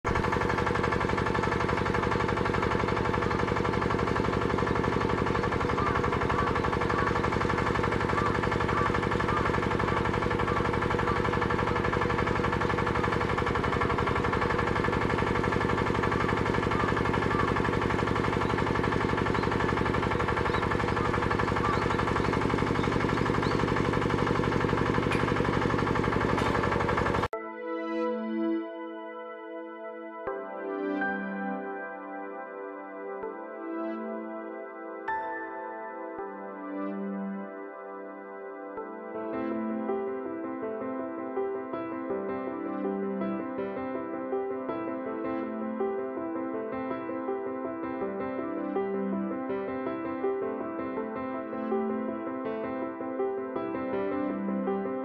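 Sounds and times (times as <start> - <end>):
engine-driven pump pulsing: 0.0 - 27.3.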